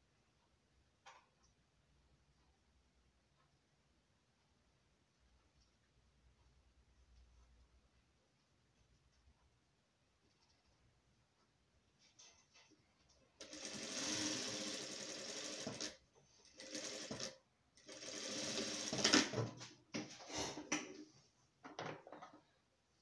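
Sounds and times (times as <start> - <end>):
sewing machine stitching: 13.4 - 19.5.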